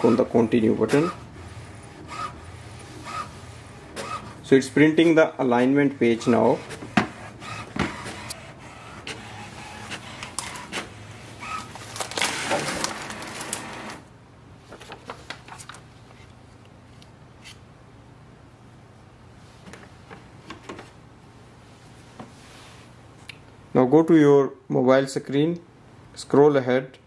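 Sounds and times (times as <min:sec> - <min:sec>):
inkjet printer printing: 0:00.0 - 0:14.1
faint clicks of paper handling: 0:14.7 - 0:17.6.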